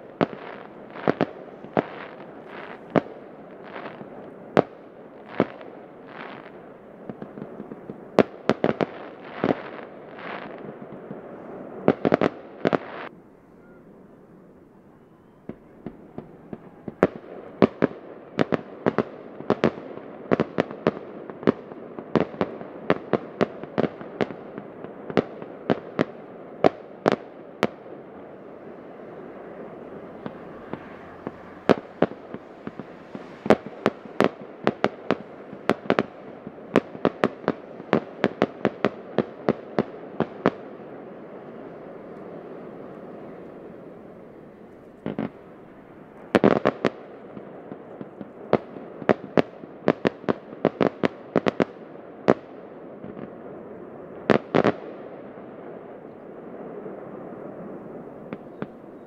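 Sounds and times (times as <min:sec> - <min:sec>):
fireworks bangs: 0:00.0 - 0:59.0
steady rumble: 0:28.0 - 0:36.6.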